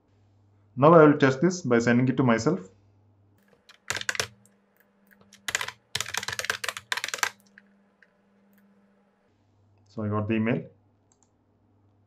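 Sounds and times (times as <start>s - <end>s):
typing on keyboard: 3.4s - 8.8s.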